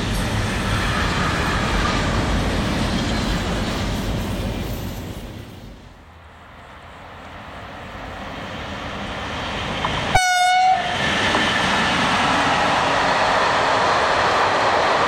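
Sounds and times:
freight train rolling: 0.0s - 15.0s
locomotive horn blast: 10.1s - 11.0s.

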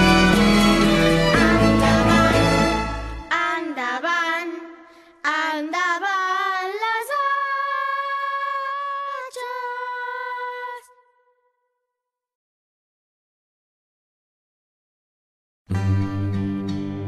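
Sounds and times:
high voice singing unaccompanied: 1.2s - 11.3s.

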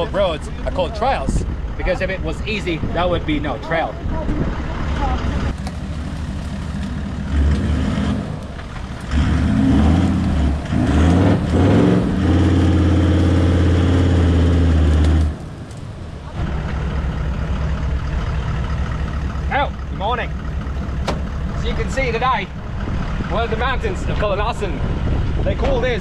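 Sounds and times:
engine revving under load: 6.5s - 15.8s.

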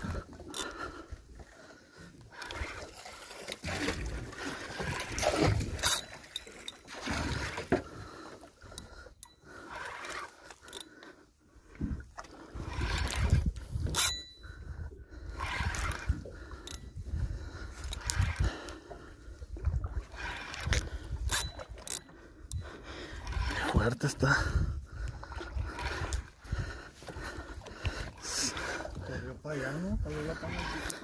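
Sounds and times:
fishing reel cranking: 0.0s - 1.5s, 2.2s - 11.2s, 12.3s - 18.8s, 19.9s - 24.4s, 25.4s - 27.2s, 29.7s - 31.0s
water noise: 0.0s - 31.0s.

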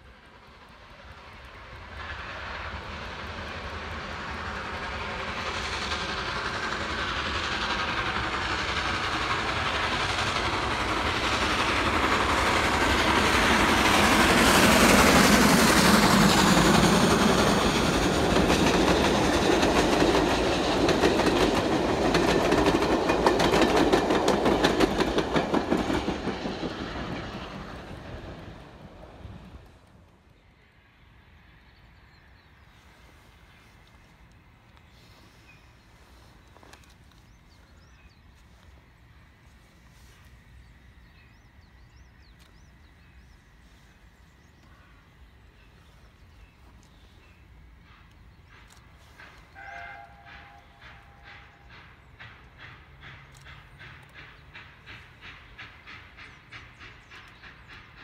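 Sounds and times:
steam locomotive working hard: 0.0s - 58.0s
wheels clacking over rail joints: 0.7s - 30.0s, 47.8s - 58.0s.

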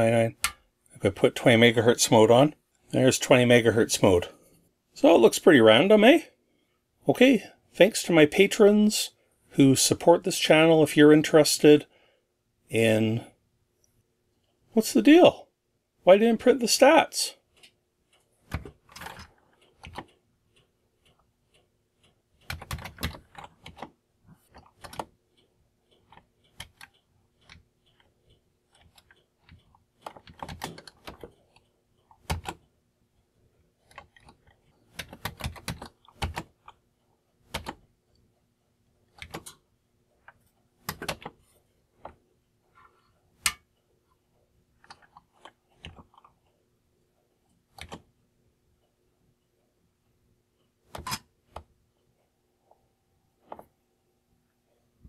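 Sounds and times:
keyboard keystrokes: 18.5s - 20.1s, 22.4s - 23.9s, 28.8s - 31.3s, 32.2s - 32.6s, 33.9s - 36.8s, 37.5s - 37.8s, 39.1s - 39.6s, 40.8s - 41.4s, 47.7s - 48.0s.

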